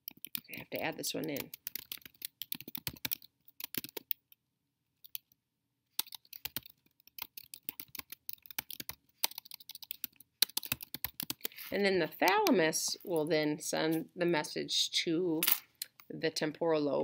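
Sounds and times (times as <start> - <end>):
typing on keyboard: 0.0 - 4.3, 6.0 - 11.5.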